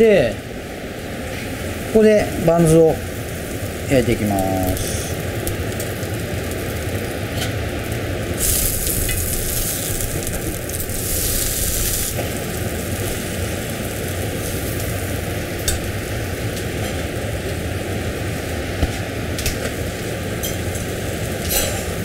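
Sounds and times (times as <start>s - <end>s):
steady low hum: 0.0s - 22.0s
food sizzling in butter: 1.6s - 18.2s.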